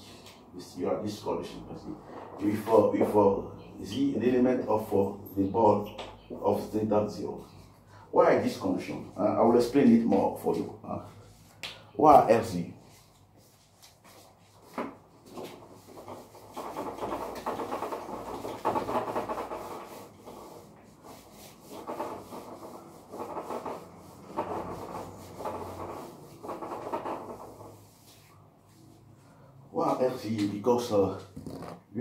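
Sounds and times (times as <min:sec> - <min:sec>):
eraser rubbing on whiteboard: 0:12.9 - 0:29.0, 0:31.3 - 0:31.8.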